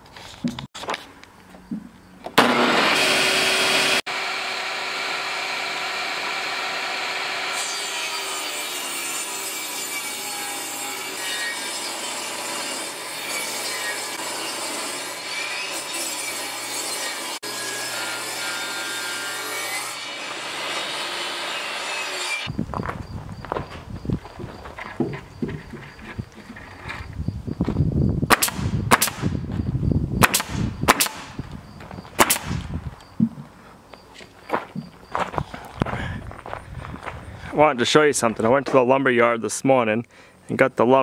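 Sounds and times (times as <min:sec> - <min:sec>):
table saw cutting board: 0:02.4 - 0:22.5.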